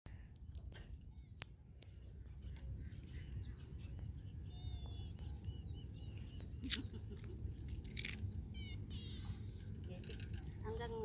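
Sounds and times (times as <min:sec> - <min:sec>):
insect drone: 0:00.2 - 0:11.0
bird chirping: 0:01.2 - 0:10.4.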